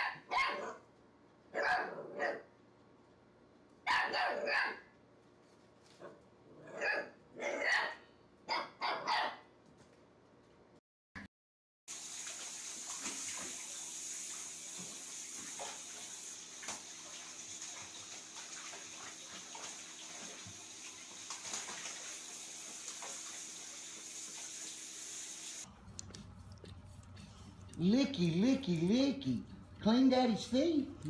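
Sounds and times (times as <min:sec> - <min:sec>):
water running into bathtub: 0:11.9 - 0:26.1
puppy splashing in water: 0:12.2 - 0:24.7.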